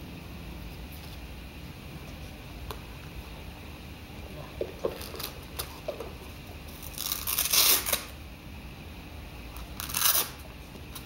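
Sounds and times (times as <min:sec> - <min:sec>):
velcro strap ripping open: 0:06.7 - 0:08.2, 0:09.7 - 0:10.4.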